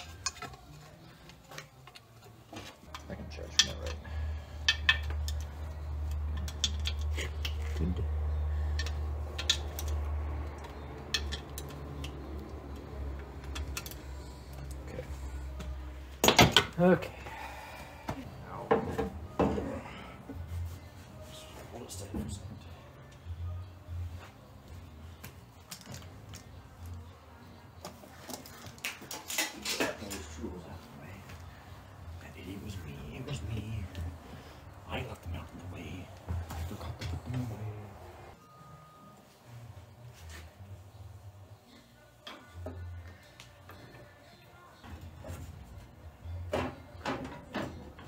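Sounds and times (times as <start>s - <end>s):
engine parts clicking and knocking: 1.3s - 14.9s.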